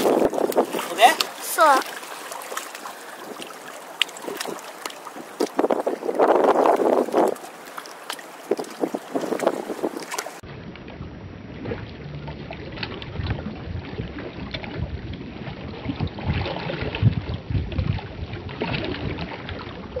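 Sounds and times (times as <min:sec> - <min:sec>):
waves lapping on rocks: 0:00.0 - 0:10.4
wind buffeting microphone: 0:00.0 - 0:20.0.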